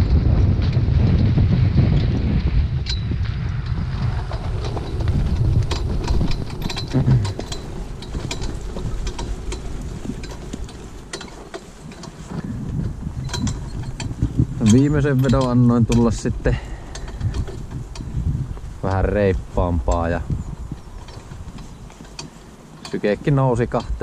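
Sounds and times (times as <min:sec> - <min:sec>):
cart clicking and rattling: 0:00.0 - 0:24.0
horse hooves: 0:00.0 - 0:24.0
wind buffeting microphone: 0:00.0 - 0:24.0.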